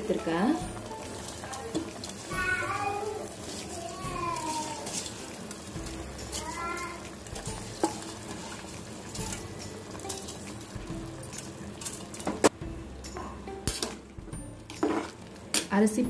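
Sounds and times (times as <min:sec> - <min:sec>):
water boiling with bubbling pops: 0:00.0 - 0:15.8.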